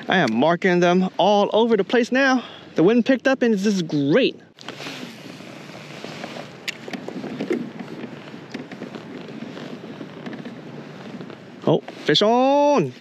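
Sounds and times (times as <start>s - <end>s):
water lapping against kayak: 4.5s - 12.2s
light clicks and crackles: 4.6s - 12.2s
wind noise: 4.6s - 13.0s.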